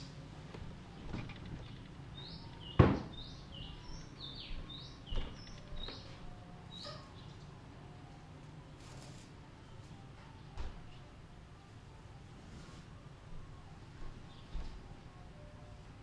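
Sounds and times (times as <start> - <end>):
low background noise: 0.0 - 16.0
birds chirping: 0.8 - 7.5.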